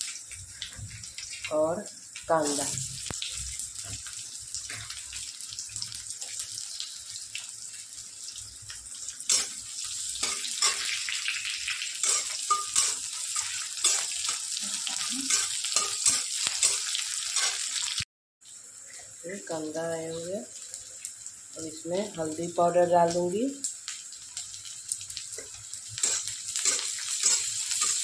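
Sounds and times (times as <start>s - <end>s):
onions sizzling in oil: 0.0s - 28.0s
spatula scraping pan: 12.0s - 14.3s, 14.9s - 17.6s, 25.4s - 28.0s.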